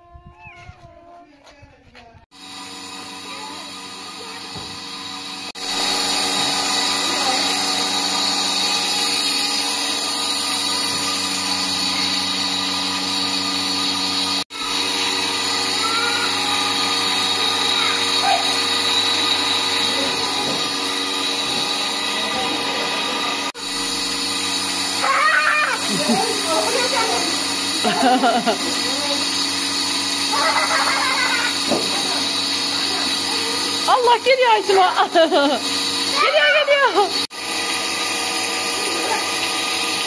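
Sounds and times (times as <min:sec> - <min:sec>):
vacuum pump drone: 0:01.8 - 0:40.0.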